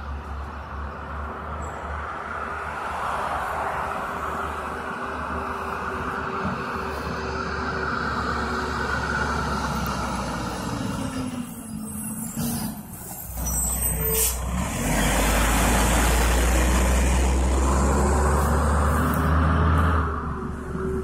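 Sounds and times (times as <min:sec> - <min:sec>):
truck diesel engine passing: 0:00.0 - 0:21.0
air brakes hissing: 0:11.4 - 0:14.5.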